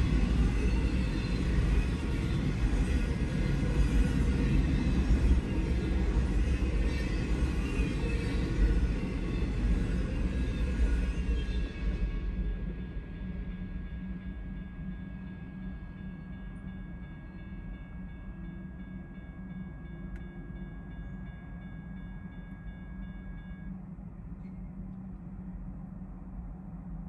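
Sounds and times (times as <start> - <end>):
freight train rumbling past: 0.0 - 27.0
steady low hum: 12.7 - 27.0.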